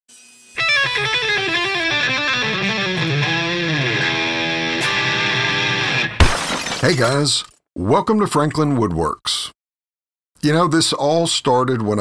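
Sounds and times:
electric guitar music: 0.6s - 6.2s.

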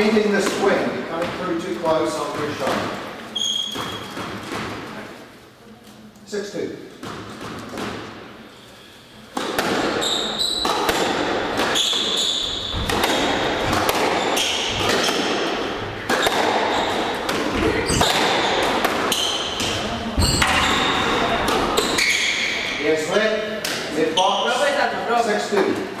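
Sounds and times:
squash ball hits: 0.4s - 5.0s, 7.0s - 8.3s, 9.3s - 22.8s
shoes squeaking on court floor: 1.8s - 4.5s, 9.6s - 22.8s.

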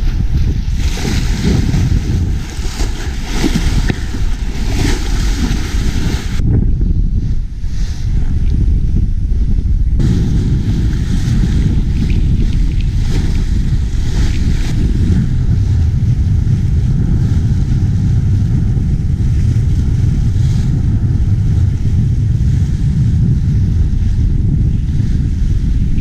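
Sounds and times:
wind buffeting microphone: 0.0s - 26.0s
water rushing along hull: 0.6s - 6.4s, 10.0s - 24.5s.

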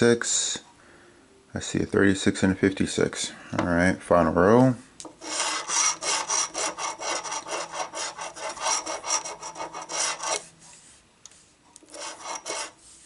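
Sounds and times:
coin scratching lottery ticket: 5.2s - 10.5s, 11.8s - 12.8s.

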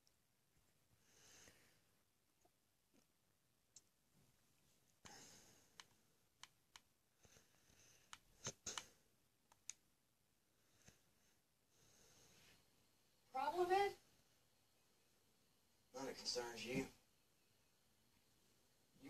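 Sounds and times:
faint scattered clicks: 4.9s - 9.8s.

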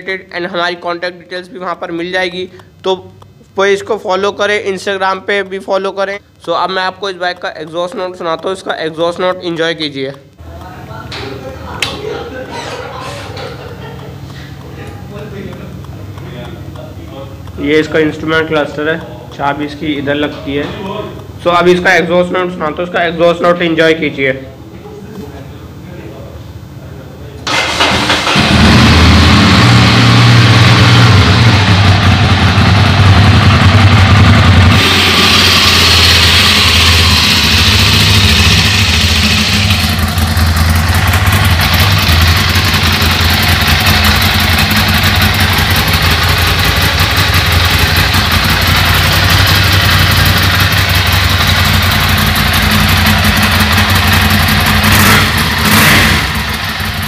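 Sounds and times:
motorcycle engine starting and idling: 27.4s - 57.0s.

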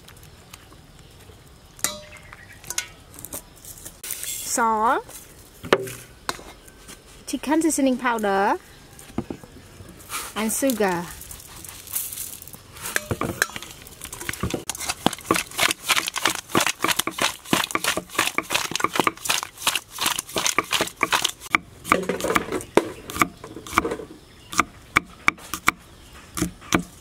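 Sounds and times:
meat tossed in metal bowl: 12.9s - 22.4s
cleaver chopping on wooden board: 14.5s - 19.2s, 20.0s - 25.8s, 26.4s - 26.9s.

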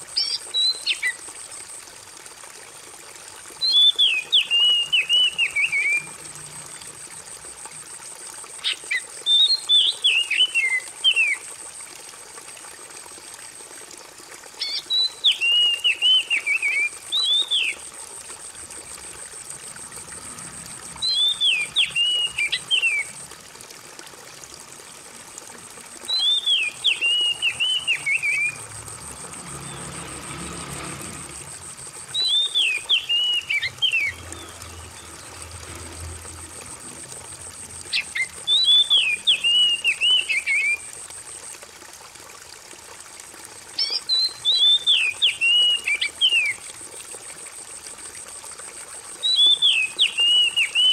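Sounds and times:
water trickling: 0.0s - 50.9s
songbird whistling: 3.6s - 6.1s, 14.6s - 17.8s, 21.0s - 23.1s, 26.1s - 28.6s, 32.1s - 34.8s, 37.9s - 40.8s, 43.8s - 46.6s, 49.2s - 50.9s.

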